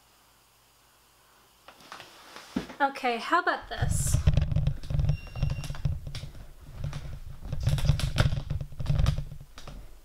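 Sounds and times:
close handling noise: 0:03.8 - 0:10.0
faint high beep: 0:05.1 - 0:05.8.

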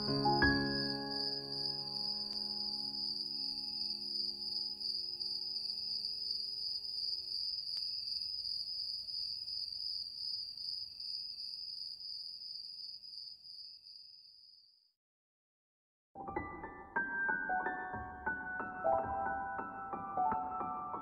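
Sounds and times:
held music notes: 0:00.0 - 0:03.0
crickets trilling: 0:00.1 - 0:14.7.

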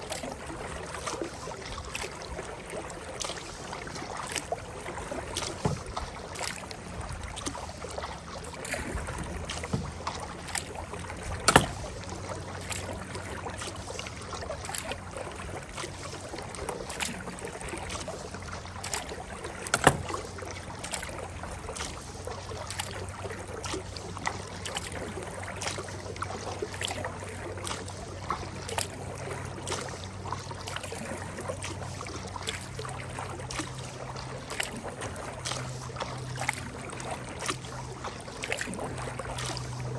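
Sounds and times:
paddle splashing in water: 0:00.0 - 0:39.9.

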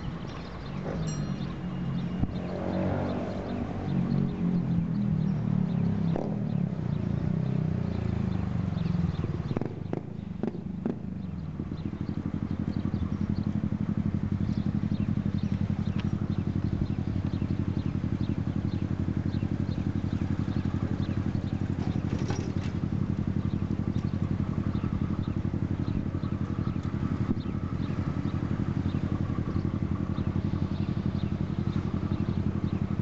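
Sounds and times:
diesel engine running: 0:00.0 - 0:33.0.

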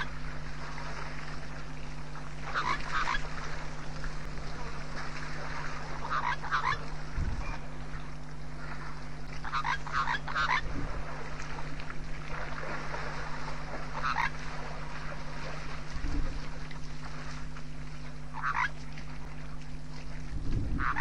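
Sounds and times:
steady low hum: 0:00.0 - 0:21.0
rapid animal calls: 0:02.4 - 0:03.4, 0:06.0 - 0:06.9, 0:09.4 - 0:10.8, 0:13.8 - 0:14.5, 0:18.3 - 0:18.8, 0:20.8 - 0:21.0.

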